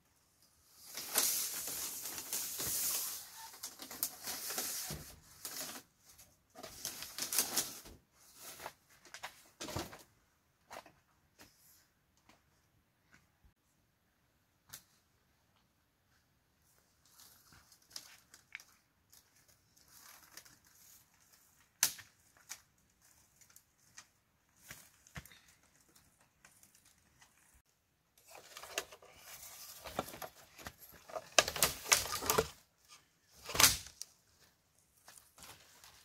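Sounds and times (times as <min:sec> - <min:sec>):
rustling and scraping: 0:23.0 - 0:36.0.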